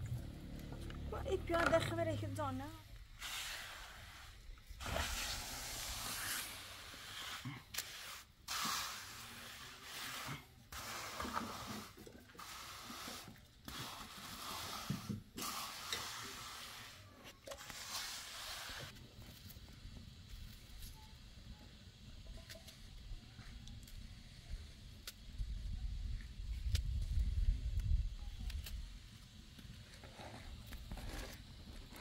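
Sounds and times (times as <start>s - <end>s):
trowel scraping wet concrete: 3.2s - 19.0s.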